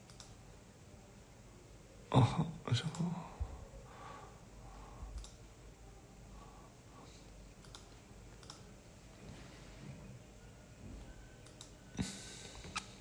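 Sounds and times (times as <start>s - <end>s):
computer clicks: 0.0s - 0.4s, 2.8s - 3.1s, 5.1s - 5.4s, 7.5s - 8.7s, 11.4s - 11.8s.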